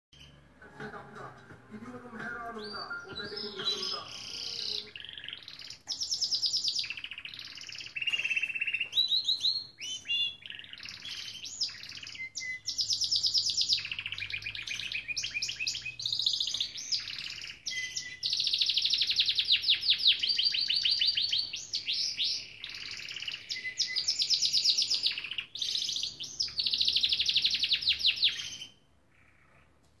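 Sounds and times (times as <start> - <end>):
canary singing trills: 0.2 - 0.5, 2.2 - 29.7.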